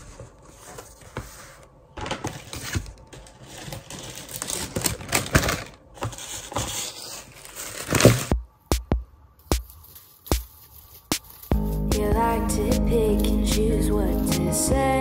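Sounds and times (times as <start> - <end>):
cellophane crinkling: 2.1 - 8.4.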